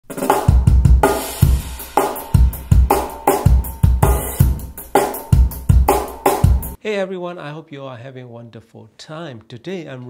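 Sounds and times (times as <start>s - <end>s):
drum kit solo through speakers: 0.0s - 6.8s
heavy kick drum hits: 0.3s - 6.8s.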